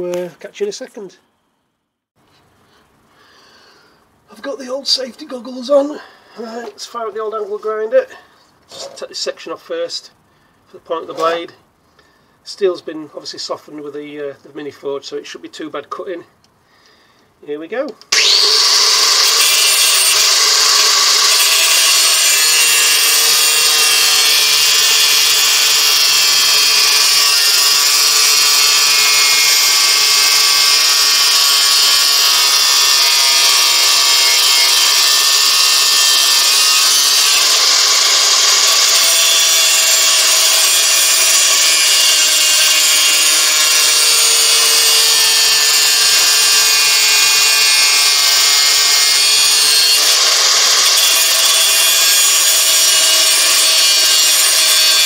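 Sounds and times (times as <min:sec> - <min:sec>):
angle grinder cutting steel: 0:18.1 - 0:55.0.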